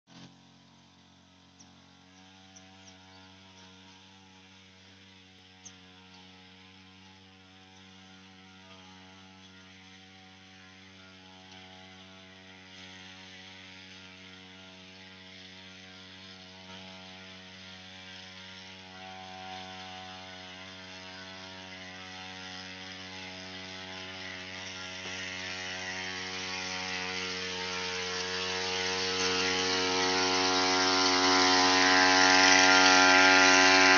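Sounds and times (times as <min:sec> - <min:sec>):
two-stroke sprayer engine running: 0:00.1 - 0:33.9
sprayer hiss: 0:07.9 - 0:33.9.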